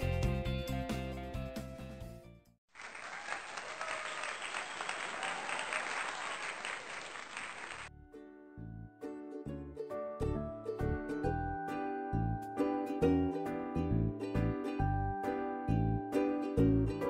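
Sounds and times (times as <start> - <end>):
music: 0.0 - 2.6, 7.9 - 17.0
crowd applauding: 2.7 - 7.9.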